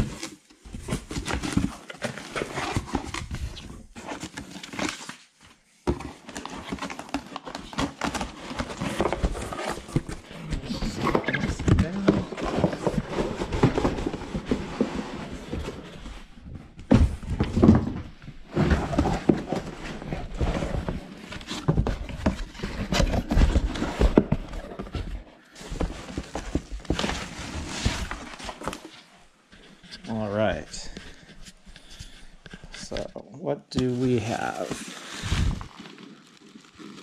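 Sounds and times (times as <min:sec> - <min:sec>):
cardboard box knocks and thuds: 0:05.8 - 0:15.8, 0:16.8 - 0:28.8
packing rustling: 0:34.0 - 0:37.0.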